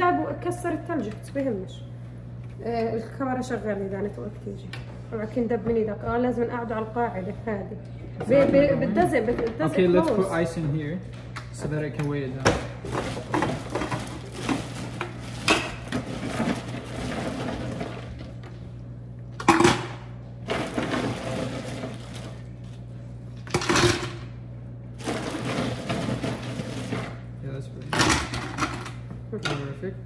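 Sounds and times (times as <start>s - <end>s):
steady low hum: 0.0s - 30.0s
ice and plastic clattering: 12.9s - 18.1s.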